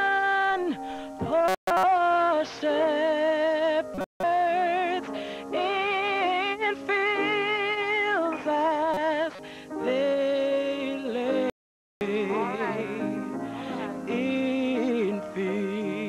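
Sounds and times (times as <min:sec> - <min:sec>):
vocal group singing slow song: 0:10.3 - 0:16.0.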